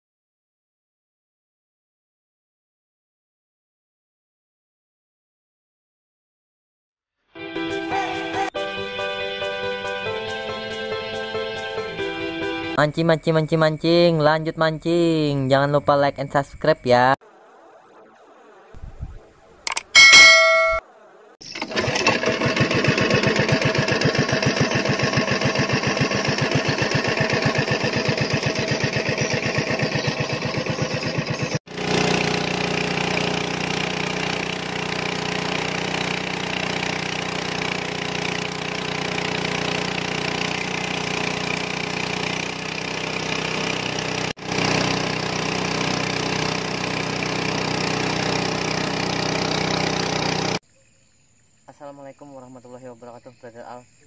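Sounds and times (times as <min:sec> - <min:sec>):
small boat engine running: 0:21.4 - 0:50.6.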